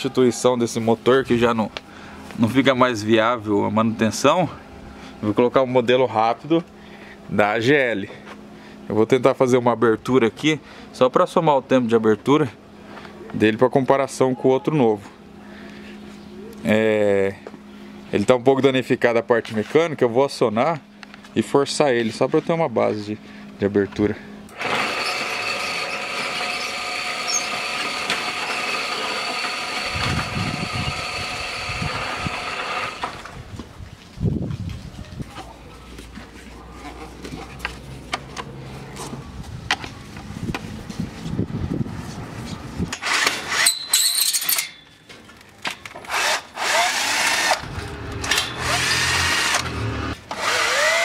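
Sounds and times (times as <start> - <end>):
gate motor whining: 24.4 - 33.5, 42.9 - 51.0.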